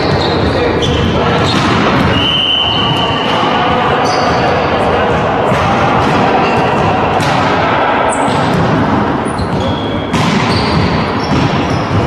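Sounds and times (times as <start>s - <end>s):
echoing sports hall din: 0.0s - 12.0s
volleyball struck with smacks: 5.5s - 12.0s
shoes squeaking on wooden floor: 9.2s - 12.0s.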